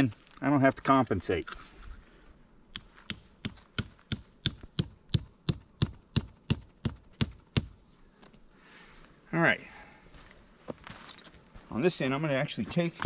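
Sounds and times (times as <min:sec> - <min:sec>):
tent peg being hammered: 0:02.7 - 0:07.8.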